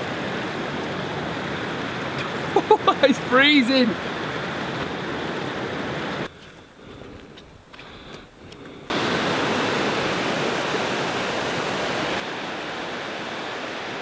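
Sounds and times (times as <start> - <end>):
fast-flowing river rushing: 0.0 - 6.3, 8.9 - 14.0
faint ticks: 6.3 - 8.8.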